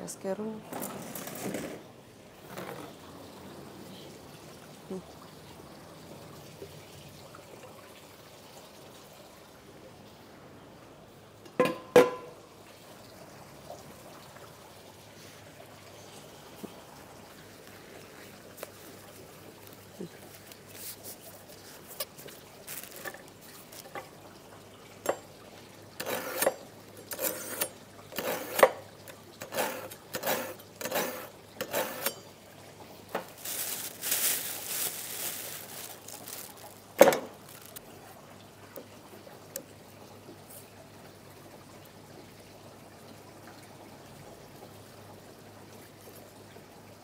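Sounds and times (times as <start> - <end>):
rushing water: 12.1 - 38.6
household knocks and clinks: 33.1 - 37.8.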